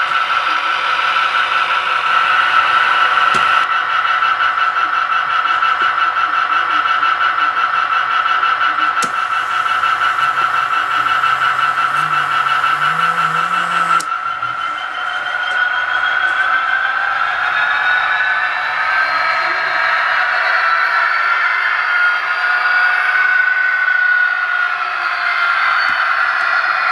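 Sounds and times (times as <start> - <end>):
electric motor whining: 9.0 - 14.1
hiss: 9.0 - 14.1.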